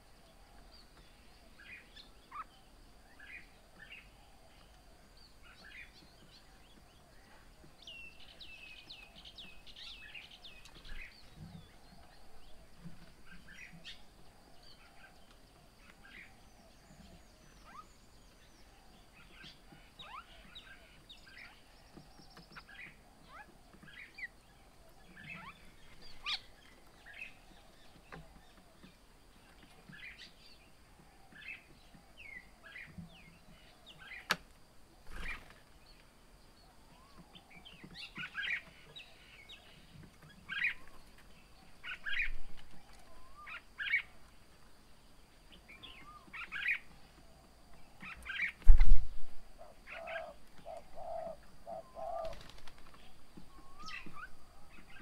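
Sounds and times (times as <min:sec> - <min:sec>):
birds chirping and calling: 0:00.0 - 0:55.0
wing flaps: 0:52.2 - 0:53.2.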